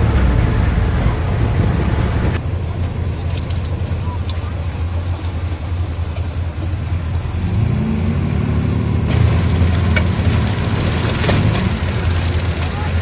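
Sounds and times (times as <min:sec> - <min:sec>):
bulldozer diesel engine under load: 0:00.0 - 0:13.0
harsh grinding: 0:09.1 - 0:13.0.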